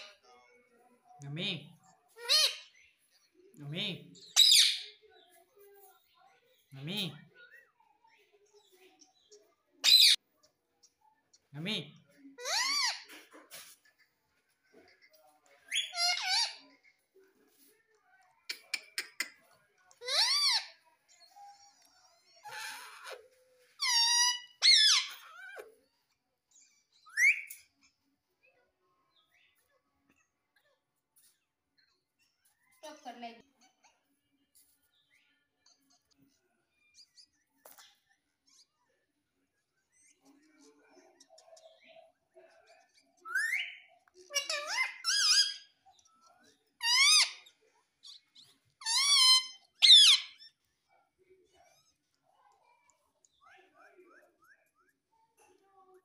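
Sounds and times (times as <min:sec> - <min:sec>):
parrot squawking: 0:04.3 - 0:05.0, 0:09.8 - 0:10.2, 0:12.4 - 0:13.2, 0:15.7 - 0:16.7, 0:20.0 - 0:20.8, 0:22.4 - 0:25.7, 0:43.3 - 0:45.8, 0:46.8 - 0:50.6.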